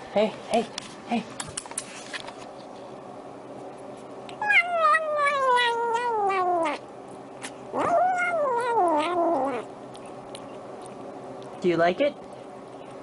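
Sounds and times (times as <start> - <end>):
kitten meowing: 4.4 - 6.8, 7.8 - 9.7.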